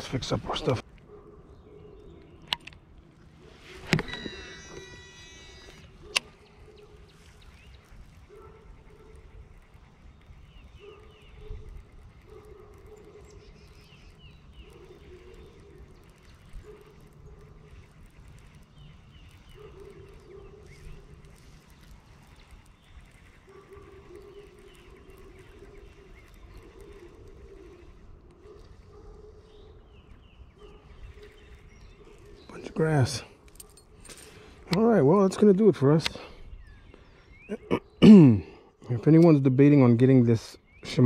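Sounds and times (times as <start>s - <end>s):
small birds chirping: 0.0s - 41.0s
low repeating animal calls: 3.4s - 32.7s.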